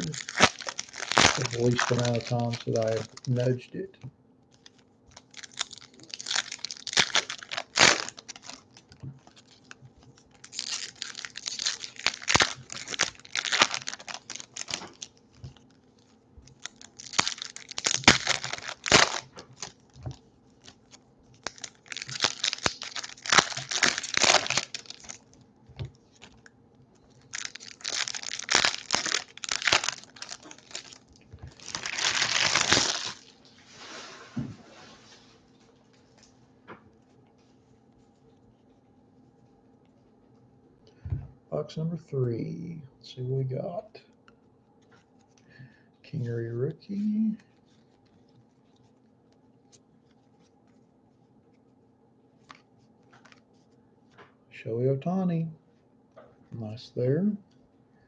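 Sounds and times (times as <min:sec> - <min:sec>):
foil wrappers tearing and crinkling: 0:00.0 - 0:03.6, 0:04.5 - 0:33.6, 0:52.4 - 0:53.4.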